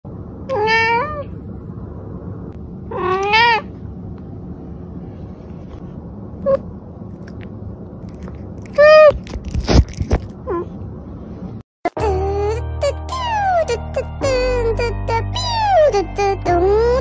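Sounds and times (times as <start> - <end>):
cat meowing: 0.5 - 1.3, 2.9 - 3.7.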